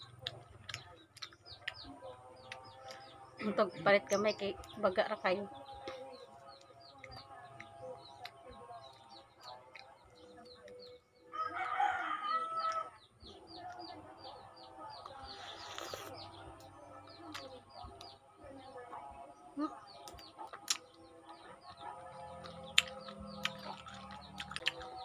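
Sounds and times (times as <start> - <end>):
rooster crowing: 11.3 - 13.0.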